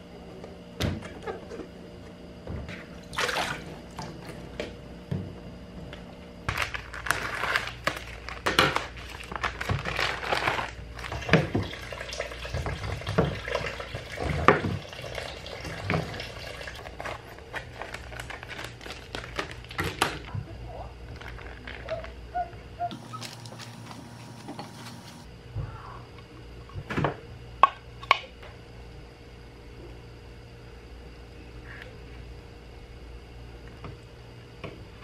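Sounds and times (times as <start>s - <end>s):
plastic packaging crinkling: 6.5s - 11.3s, 16.8s - 20.3s, 21.1s - 22.2s, 22.9s - 25.3s.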